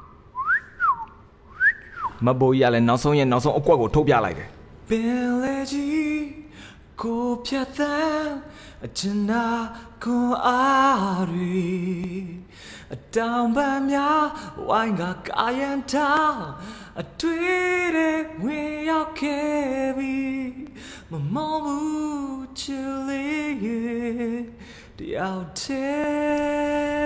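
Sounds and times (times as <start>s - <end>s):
person singing unaccompanied: 13.1s - 27.0s.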